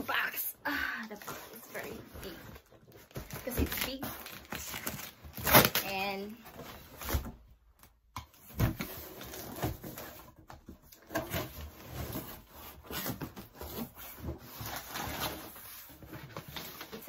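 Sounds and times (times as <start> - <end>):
cardboard scraping and rustling: 1.1 - 7.4, 8.4 - 17.0.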